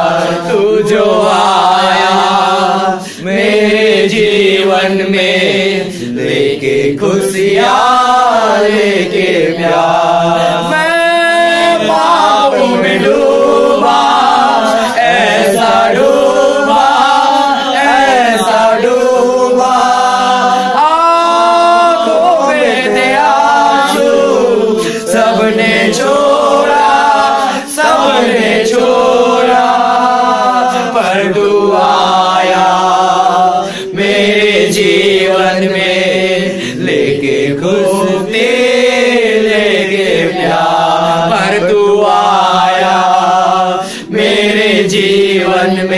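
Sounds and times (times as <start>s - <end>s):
group singing unaccompanied: 0.0s - 45.9s.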